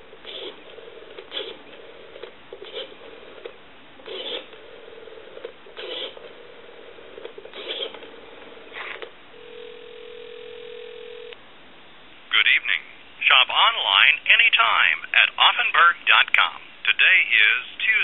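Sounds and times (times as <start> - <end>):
telephone ringing tone: 9.4 - 11.4.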